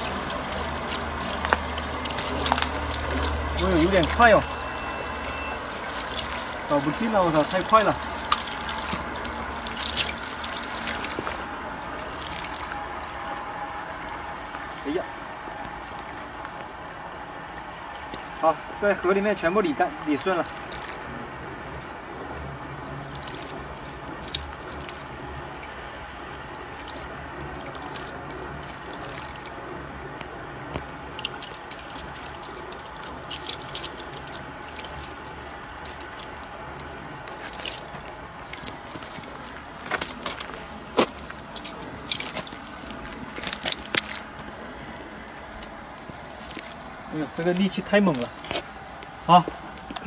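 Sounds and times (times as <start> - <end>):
short sharp splashes: 0.0 - 13.0, 20.3 - 22.1, 22.8 - 29.6
water dripping off a net: 0.0 - 14.8, 19.2 - 50.0.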